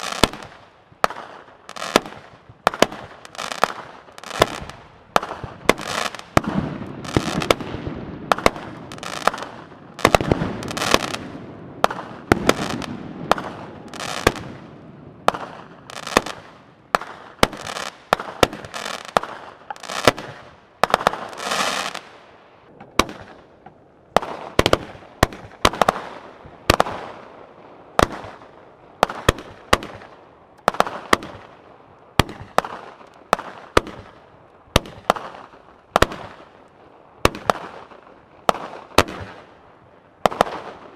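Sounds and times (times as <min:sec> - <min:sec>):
fireworks hissing and crackling: 0:00.0 - 0:31.6
fireworks bangs: 0:00.0 - 0:36.5, 0:40.2 - 0:40.9.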